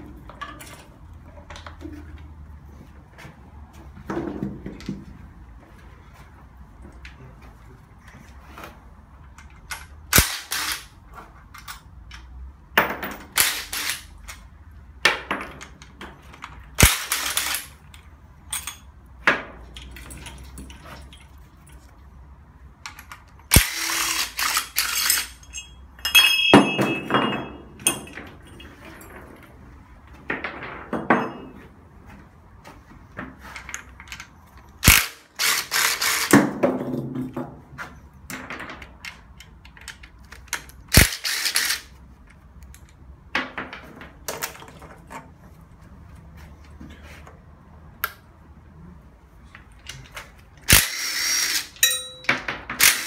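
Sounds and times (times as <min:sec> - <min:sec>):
metallic ring: 0:25.3 - 0:28.9, 0:51.8 - 0:52.4
metal clicks and knocks: 0:38.2 - 0:40.9.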